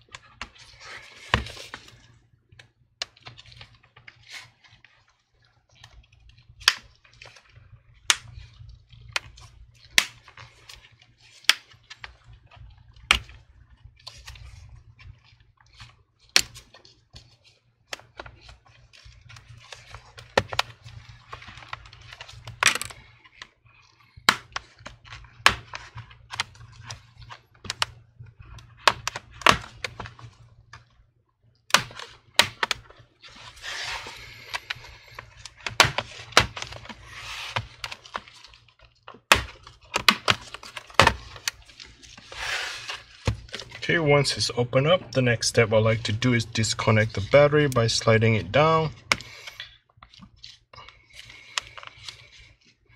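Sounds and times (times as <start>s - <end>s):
tool scraping laptop cover: 33.3s - 34.8s, 42.2s - 43.7s.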